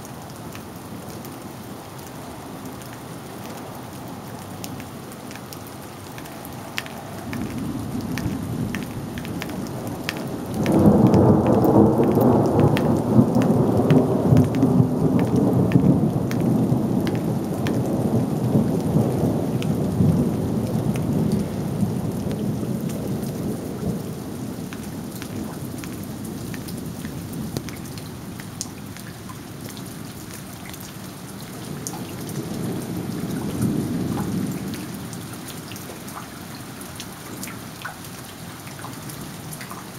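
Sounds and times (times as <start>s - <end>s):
rain falling: 0.0s - 39.9s
thunder rumbling: 7.3s - 26.1s.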